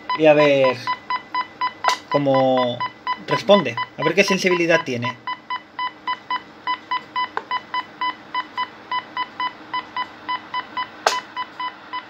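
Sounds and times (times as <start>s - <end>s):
short radio beeps: 0.1s - 1.5s, 2.1s - 5.4s
sharp click: 11.1s - 11.3s.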